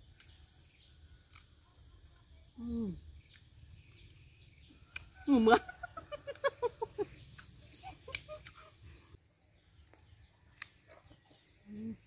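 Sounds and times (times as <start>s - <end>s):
high bird chirps: 7.0s - 8.7s.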